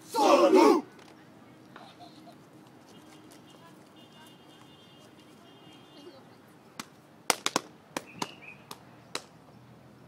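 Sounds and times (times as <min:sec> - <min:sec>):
arms slapping against sides: 0:06.8 - 0:09.4.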